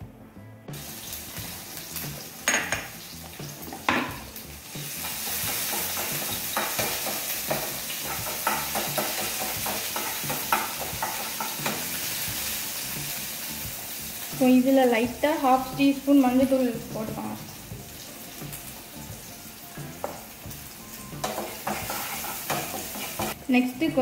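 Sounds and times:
food sizzling in hot oil: 0:00.7 - 0:24.0
spatula knocking on pan: 0:02.5 - 0:03.0, 0:03.7 - 0:04.3, 0:05.4 - 0:11.9, 0:21.2 - 0:23.4.

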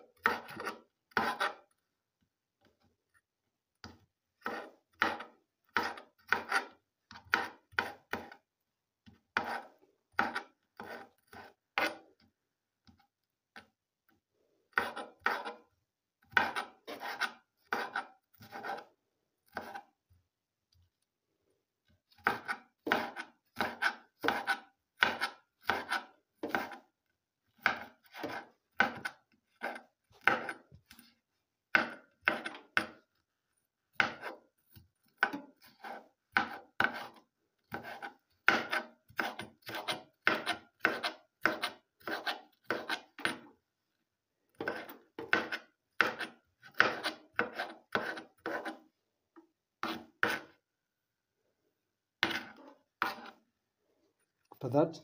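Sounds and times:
knife chopping on cutting board: 0:03.8 - 0:08.4, 0:09.3 - 0:12.0, 0:14.7 - 0:15.6, 0:16.2 - 0:18.9, 0:19.5 - 0:19.9, 0:22.1 - 0:26.8, 0:27.6 - 0:31.0, 0:31.7 - 0:33.0, 0:33.9 - 0:43.5, 0:44.5 - 0:48.8, 0:49.8 - 0:50.5, 0:52.2 - 0:53.4.

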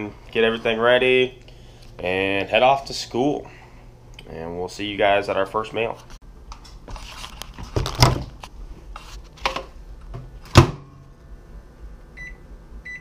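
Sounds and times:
microwave keypad beeps: 0:12.2 - 0:13.0.

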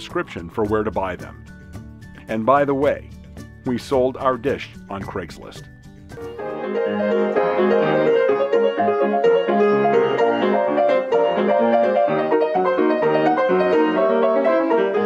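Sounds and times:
piano piece: 0:05.8 - 0:15.0.

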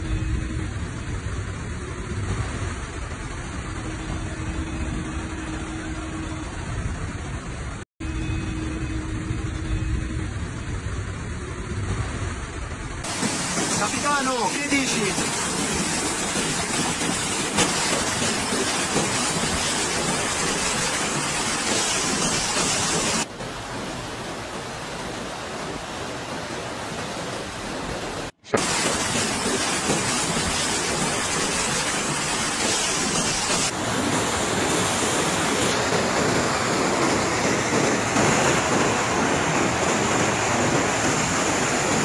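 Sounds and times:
floodwater rushing: 0:13.0 - 0:42.0.

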